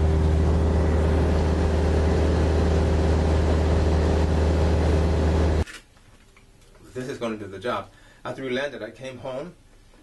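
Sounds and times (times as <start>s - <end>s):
light aircraft engine droning: 0.0s - 5.6s.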